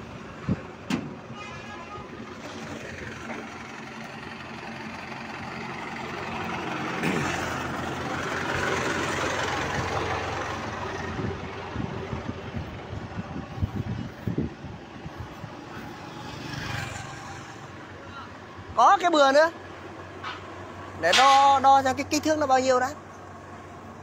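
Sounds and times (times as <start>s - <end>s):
vehicle engine running: 2.2s - 18.0s.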